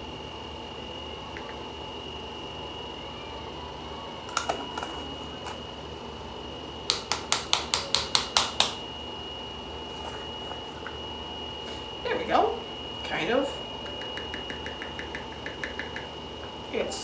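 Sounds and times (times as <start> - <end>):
hands clapping: 6.9 - 8.8, 13.8 - 16.1.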